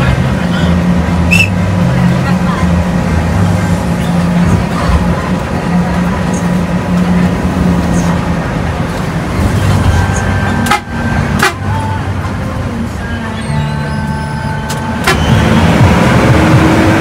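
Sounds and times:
bus engine drone: 0:00.0 - 0:17.0
road noise inside cabin: 0:00.0 - 0:17.0
horn sounding: 0:10.0 - 0:12.1, 0:13.7 - 0:15.6.

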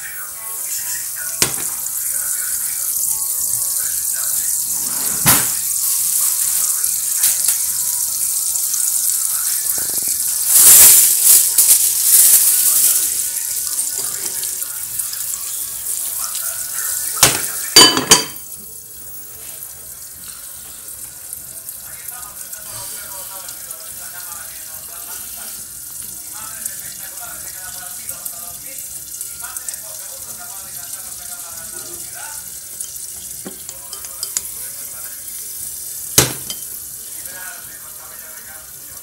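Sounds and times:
oil sizzling in a frying pan: 0:00.0 - 0:39.0
glass lid clinking on pan: 0:17.2 - 0:18.4.

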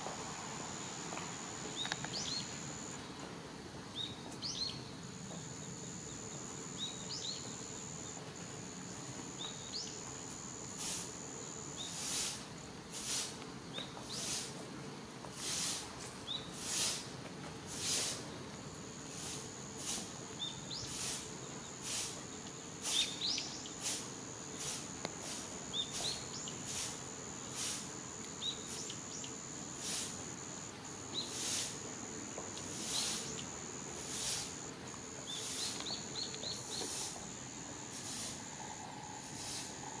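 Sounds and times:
high-pitched insect trill: 0:05.6 - 0:12.4, 0:18.9 - 0:40.0
soft hissing pulse: 0:05.6 - 0:13.4, 0:19.0 - 0:40.0.

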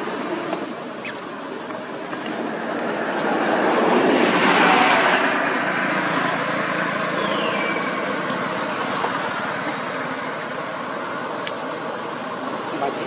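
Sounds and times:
passing motor vehicle: 0:00.0 - 0:13.0.

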